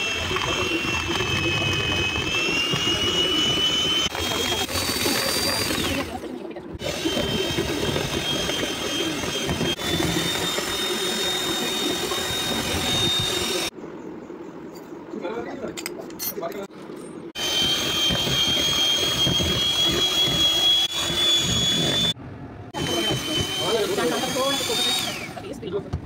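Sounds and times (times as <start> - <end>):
beaters whisking in a bowl: 0.0 - 13.7, 17.4 - 22.2
hand mixer motor whine: 0.0 - 13.7, 17.4 - 25.6.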